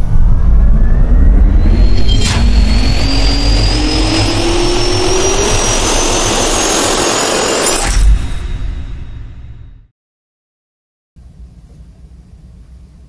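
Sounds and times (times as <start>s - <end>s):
high turbine whine: 0.0s - 9.7s
sharp hit: 0.0s - 9.9s.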